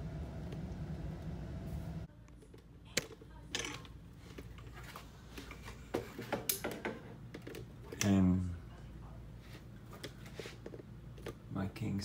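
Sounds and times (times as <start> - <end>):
low hum: 0.0 - 2.2.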